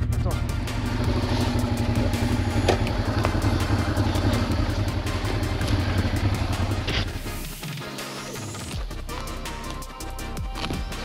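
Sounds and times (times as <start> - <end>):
motorcycle engine idling low: 0.0 - 7.6.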